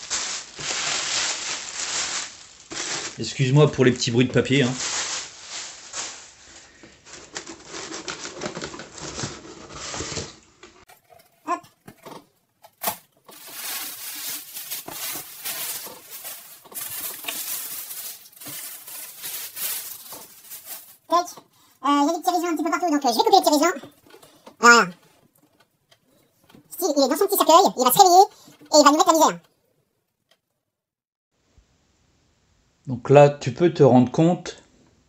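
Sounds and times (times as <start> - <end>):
tissue paper rustling and crinkling: 0.0 - 10.8, 12.8 - 21.5.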